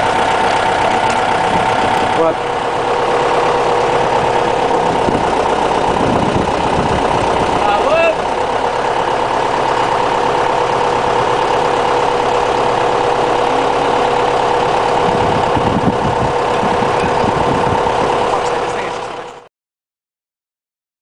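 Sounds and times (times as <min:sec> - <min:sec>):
diesel tractor engine idling: 0:00.0 - 0:19.5.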